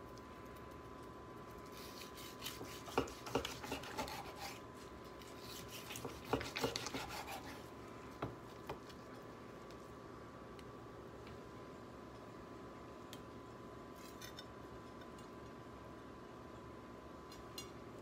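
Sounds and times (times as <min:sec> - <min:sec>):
knife sawing through meat: 0:01.8 - 0:04.6, 0:05.3 - 0:07.7.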